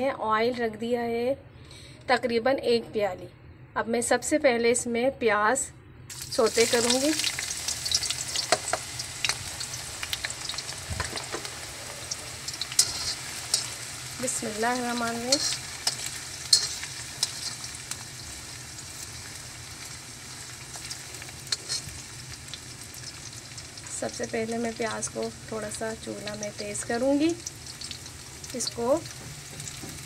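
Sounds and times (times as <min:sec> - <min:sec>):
sharp crackles: 0:06.1 - 0:24.0
onions sizzling in hot oil: 0:06.1 - 0:30.0
spoon stirring: 0:12.1 - 0:17.8, 0:20.8 - 0:22.0.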